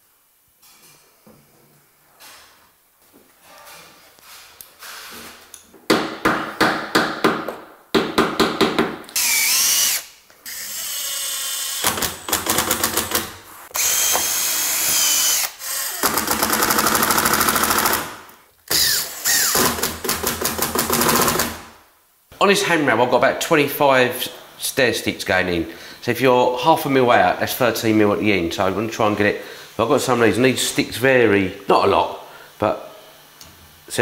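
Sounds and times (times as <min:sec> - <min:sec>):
cordless drill whirring: 0:09.2 - 0:13.2, 0:13.8 - 0:18.0, 0:18.7 - 0:19.8.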